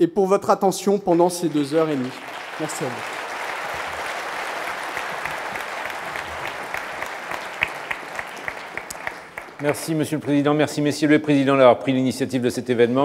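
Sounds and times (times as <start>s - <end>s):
audience applauding: 1.1s - 10.8s.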